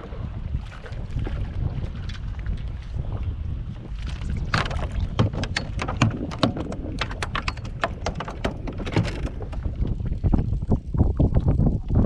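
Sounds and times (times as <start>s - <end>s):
wind rumbling on microphone: 0.0s - 12.0s
fish slapping and knocking: 4.1s - 9.9s.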